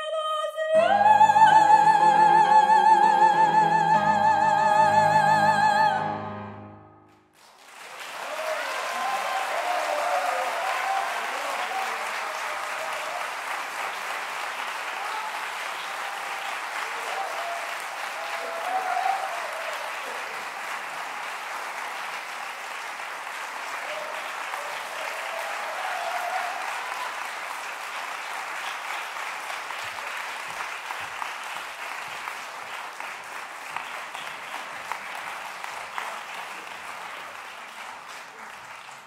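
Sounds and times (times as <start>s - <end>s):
audience applauding: 7.2s - 39.0s
audience shouts: 8.0s - 13.5s, 14.8s - 20.9s, 23.7s - 27.4s.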